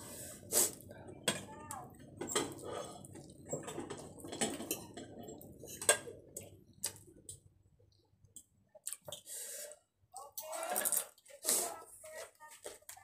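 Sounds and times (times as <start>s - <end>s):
slurping noodles: 0.0s - 0.9s.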